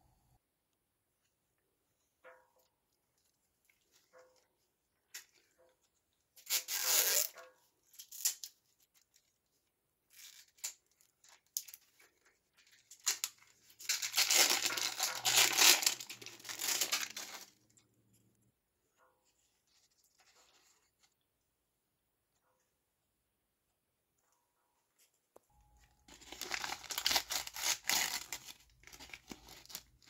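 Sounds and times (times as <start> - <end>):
plastic wrap tearing and crinkling: 6.4 - 9.2, 10.1 - 17.7, 26.1 - 30.0.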